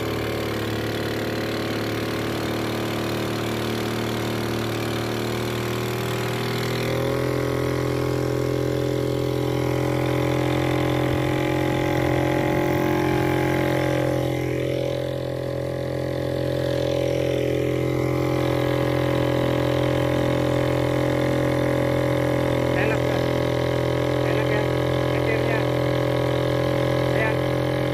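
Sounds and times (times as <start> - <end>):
boat engine droning: 0.0 - 27.9.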